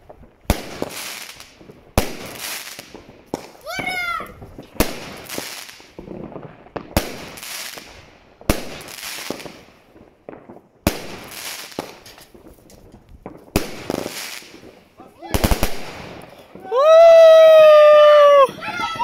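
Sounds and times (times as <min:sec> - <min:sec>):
firework crackling hiss: 0:00.0 - 0:19.0.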